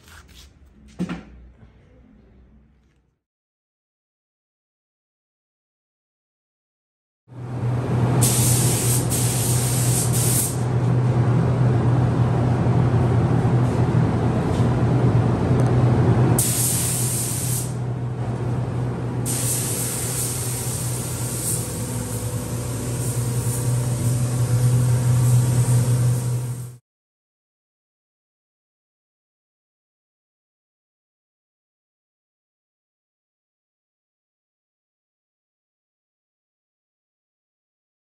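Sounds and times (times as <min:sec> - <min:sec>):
air handling hum: 0:07.5 - 0:26.8
spray gun hissing: 0:08.2 - 0:10.6, 0:16.4 - 0:17.8, 0:19.3 - 0:26.8.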